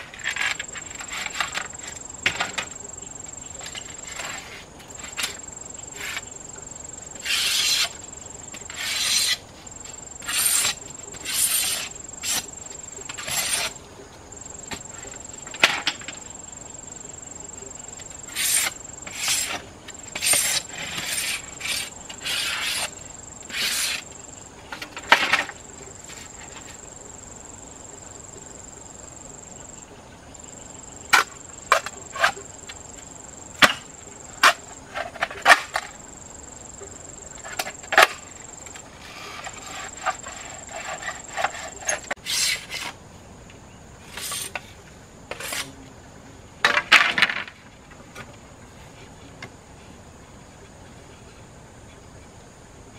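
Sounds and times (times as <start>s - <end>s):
high insect buzz: 0.0s - 43.0s, 44.0s - 46.4s.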